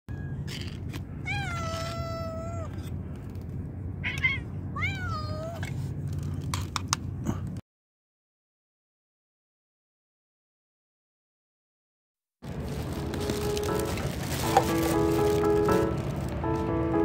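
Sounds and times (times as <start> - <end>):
cat meowing: 1.2 - 2.8, 4.0 - 5.7.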